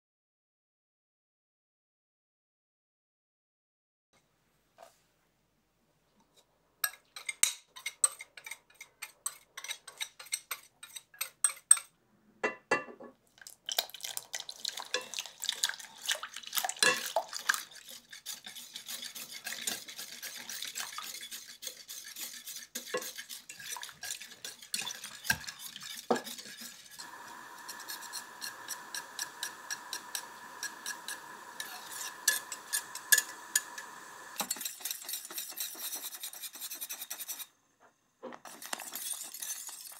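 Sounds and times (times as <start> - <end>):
liquid pouring: 13.3 - 17.7
whisk ticking against saucepan: 16.0 - 37.4
steady high hum: 27.0 - 34.4.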